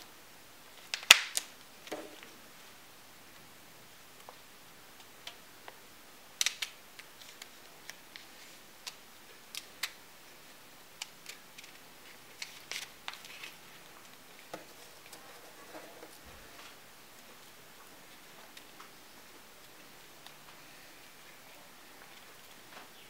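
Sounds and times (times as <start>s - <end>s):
stiff paper clicking and crinkling: 6.4s - 19.0s.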